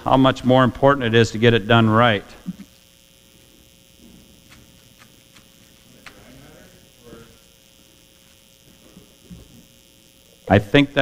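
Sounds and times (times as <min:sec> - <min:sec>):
electrical hum: 0:00.0 - 0:11.0.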